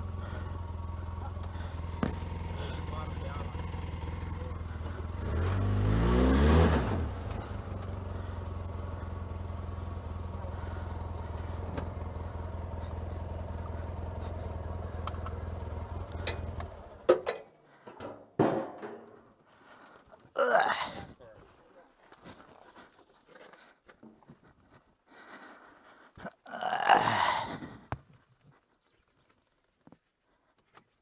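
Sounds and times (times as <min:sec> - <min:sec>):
engine revving and idling: 0:00.0 - 0:17.1.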